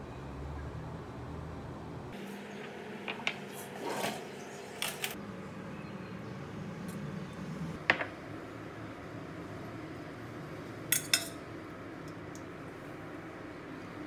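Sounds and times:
metal spoon clinking on pot: 0:10.9 - 0:11.4.

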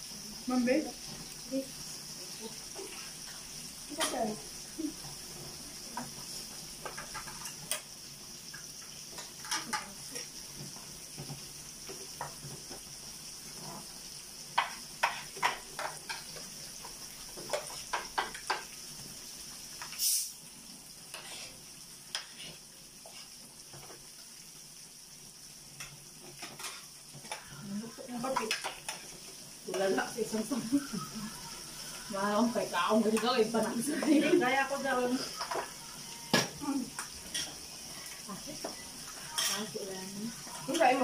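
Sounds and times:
meat sizzling on a grill pan: 0:00.0 - 0:41.0
utensils clinking against pan: 0:06.8 - 0:07.9, 0:09.1 - 0:10.3, 0:14.6 - 0:16.5, 0:25.8 - 0:27.6, 0:28.2 - 0:30.6, 0:35.2 - 0:37.7, 0:38.6 - 0:39.8.

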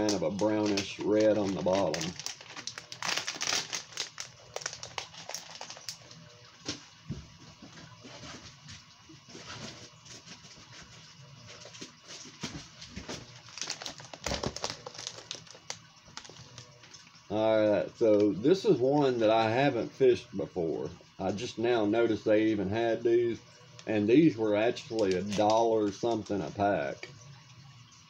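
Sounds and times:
plastic bags crinkling: 0:00.0 - 0:06.8, 0:12.2 - 0:17.1, 0:24.7 - 0:26.6.

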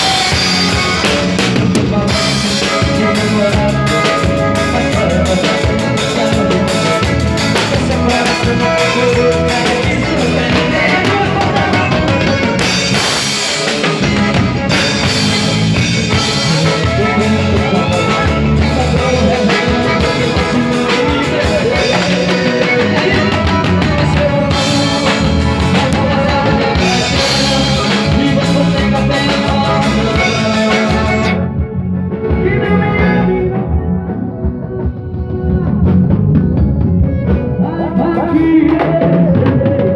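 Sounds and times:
accordion: 0:00.0 - 0:39.9
drum kit with cymbals: 0:00.0 - 0:39.9
guitar: 0:00.0 - 0:39.9
live band playing: 0:00.0 - 0:39.9.

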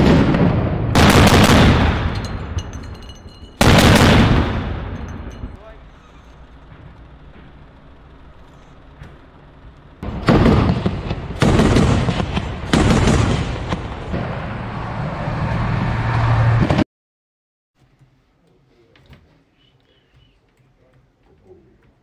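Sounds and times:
autocannon firing: 0:00.0 - 0:03.0, 0:03.6 - 0:05.5, 0:10.0 - 0:14.4
diesel engine running: 0:02.2 - 0:10.4.

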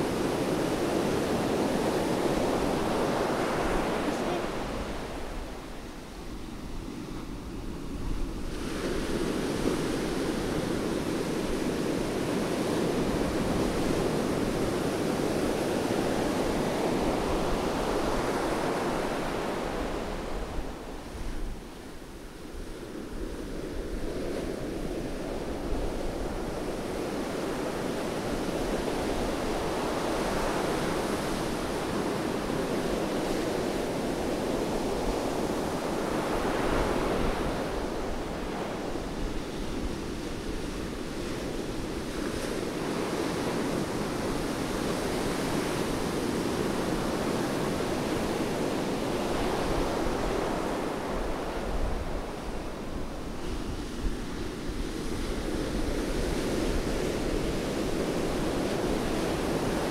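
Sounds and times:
sea surf breaking on beach: 0:00.0 - 0:59.9.

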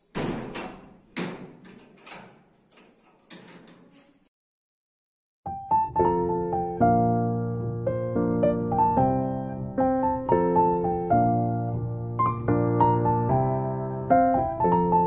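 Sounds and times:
metal door bolt clacking: 0:00.0 - 0:04.1
background piano music: 0:05.5 - 0:15.0.

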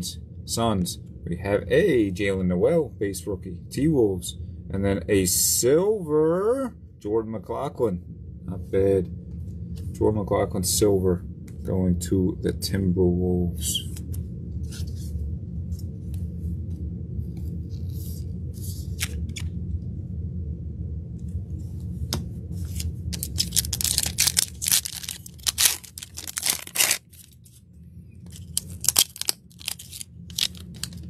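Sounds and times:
wrapper crinkly tearing: 0:22.7 - 0:27.6, 0:28.3 - 0:31.0.

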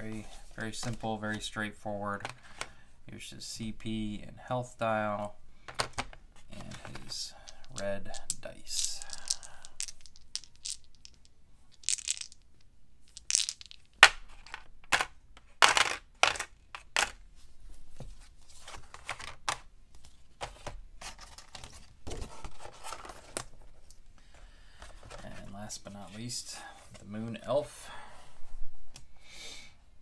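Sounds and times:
plastic dice clicking: 0:07.6 - 0:17.2.

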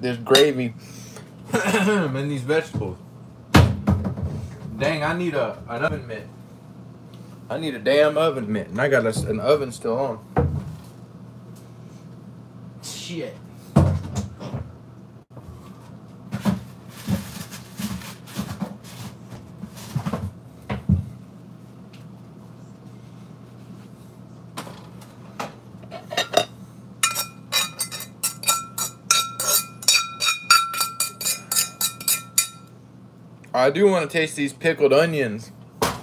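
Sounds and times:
fork clinking on skillet: 0:26.2 - 0:32.7.

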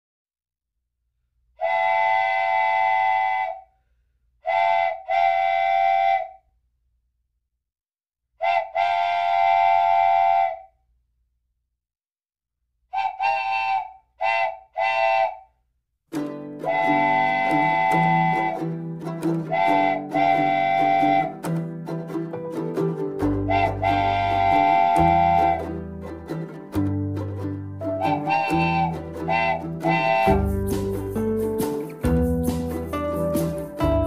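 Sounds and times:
steam locomotive whistle blasts: 0:01.6 - 0:03.7, 0:04.4 - 0:06.4, 0:08.4 - 0:10.7, 0:12.9 - 0:15.5, 0:16.6 - 0:18.8, 0:19.5 - 0:21.5, 0:23.4 - 0:25.8, 0:27.9 - 0:31.4.

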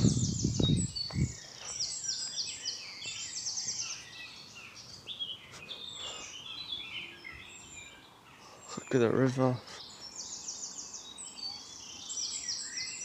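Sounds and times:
low thuds: 0:00.0 - 0:01.4
songbirds singing: 0:00.0 - 0:13.0.

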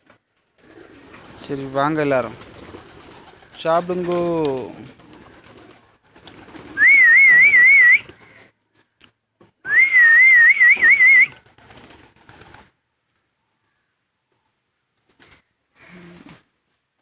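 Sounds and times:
person whistling a warbling call: 0:06.8 - 0:08.1, 0:09.7 - 0:11.3.

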